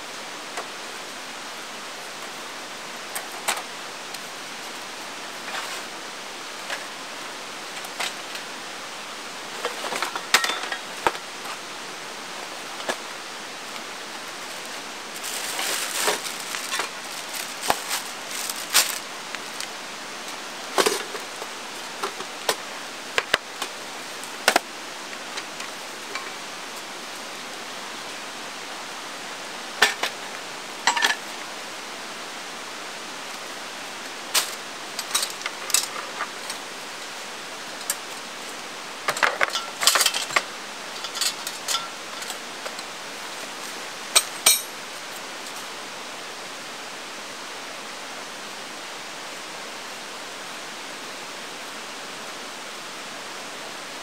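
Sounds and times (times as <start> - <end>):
river rushing: 0.0 - 54.0
camping gear knocking and clinking: 9.6 - 11.2, 15.2 - 19.0
plastic bag rustling: 14.2 - 19.8.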